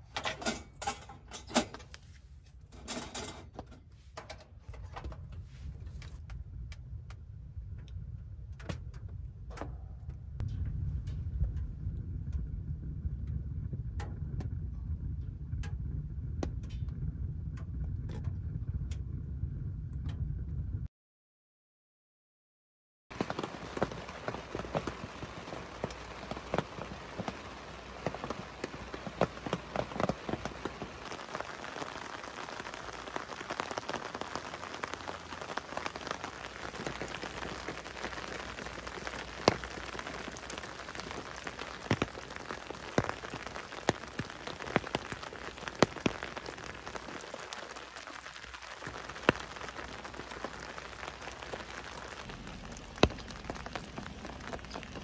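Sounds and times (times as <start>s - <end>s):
rain pattering on tent: 23.1s - 55.0s.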